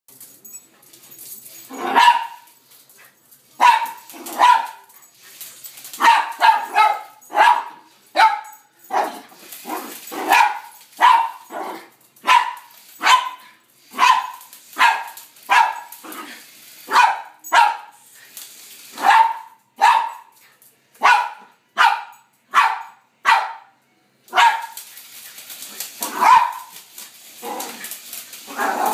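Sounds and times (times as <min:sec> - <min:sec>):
small dog barking sharply: 0:26.1 - 0:26.7.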